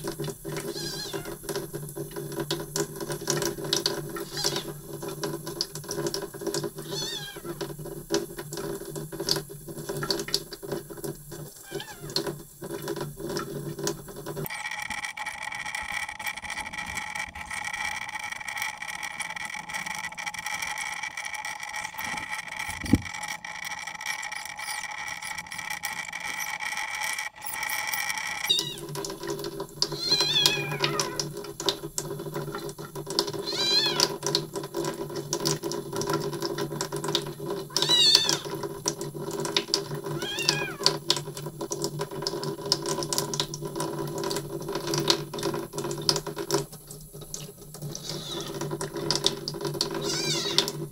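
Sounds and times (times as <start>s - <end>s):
kitten meowing: 0.6s - 1.4s, 4.2s - 4.7s, 6.8s - 7.6s, 11.6s - 12.2s, 28.4s - 28.8s, 30.0s - 31.2s, 33.4s - 34.1s, 37.7s - 38.5s, 40.2s - 40.9s, 48.0s - 48.6s, 50.0s - 50.7s.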